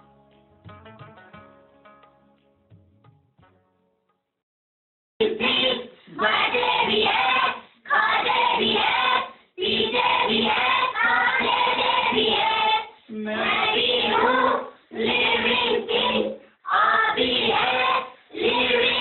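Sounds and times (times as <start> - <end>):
children singing in chorus: 5.2 - 19.0.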